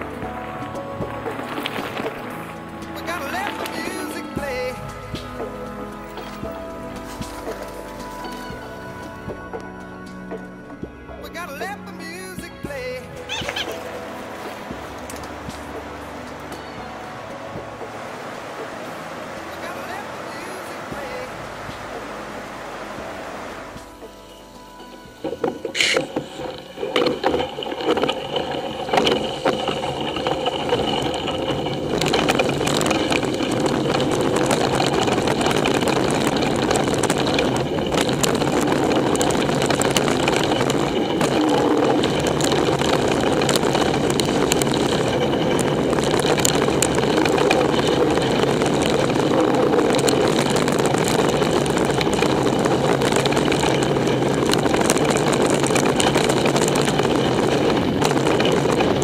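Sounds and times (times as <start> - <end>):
bike clicks and rattles: 0.0 - 10.3, 23.6 - 59.0
bike tyre noise: 0.0 - 59.0
wind rushing: 12.2 - 59.0.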